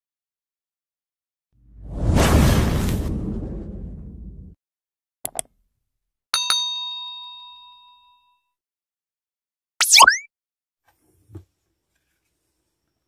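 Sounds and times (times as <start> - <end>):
ringing ding: 6.4 - 8.5.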